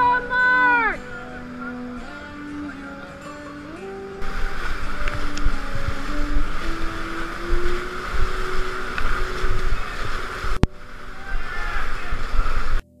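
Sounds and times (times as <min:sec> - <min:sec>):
whitewater rushing and churning: 0:00.0 - 0:12.8
wind buffeting on microphone: 0:04.2 - 0:12.8.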